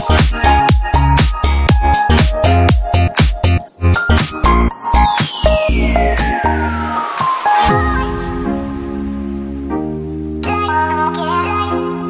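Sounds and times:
house music: 0.0s - 11.0s
high synth tone gliding: 3.6s - 10.4s.

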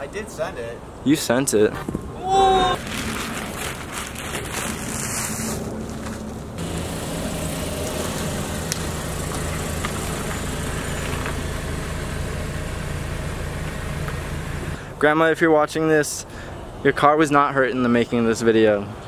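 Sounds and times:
car engine running: 5.9s - 14.8s.

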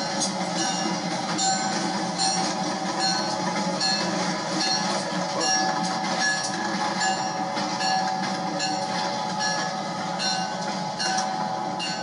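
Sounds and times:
diesel locomotive engine drone: 0.0s - 12.0s
train wheels on rails: 0.0s - 12.0s.

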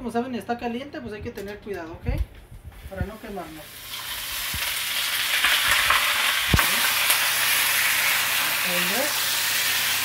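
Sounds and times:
meat sizzling in hot oil: 3.6s - 10.0s.

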